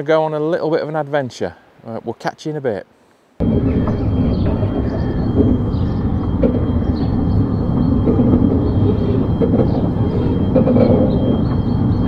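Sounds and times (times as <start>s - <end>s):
thin high whine: 3.4s - 12.0s
wheels rumbling on rails: 3.4s - 12.0s
clicks of train wheels: 3.7s - 12.0s.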